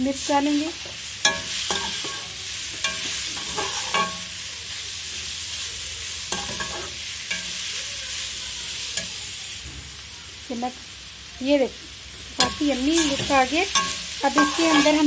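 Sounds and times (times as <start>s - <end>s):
vegetables sizzling in oil: 0.0s - 15.0s
metal spatula clinking on pan: 1.2s - 4.3s, 6.3s - 7.6s, 12.4s - 15.0s.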